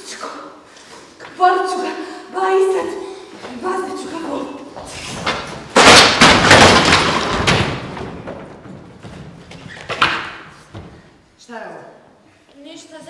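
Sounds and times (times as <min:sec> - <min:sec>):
metal chairs crashing and clattering: 0:05.2 - 0:10.4
sharp knocks: 0:05.2 - 0:11.0.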